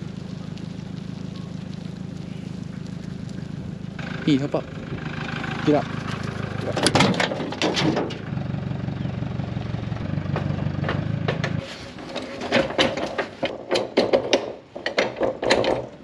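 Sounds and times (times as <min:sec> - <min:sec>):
truck engine running: 0:00.0 - 0:15.9
metal clanks: 0:06.1 - 0:08.3, 0:10.0 - 0:16.0
sharp knocks and clunks: 0:06.7 - 0:08.3, 0:10.0 - 0:16.0.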